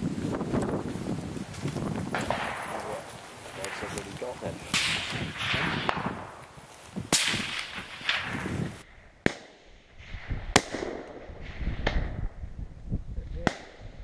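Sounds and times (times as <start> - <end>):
rifle shots: 4.6 - 6.4, 7.1 - 9.7, 10.5 - 11.3.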